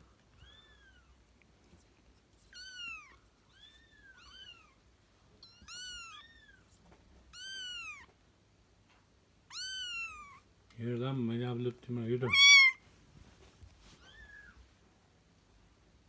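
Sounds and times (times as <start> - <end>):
kittens mewing: 12.2 - 12.8.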